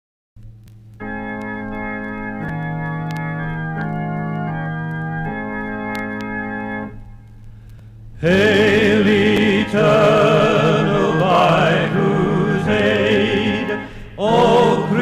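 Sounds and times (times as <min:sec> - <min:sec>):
low steady hum: 0:00.4 - 0:15.0
organ playing sustained chords: 0:01.0 - 0:15.0.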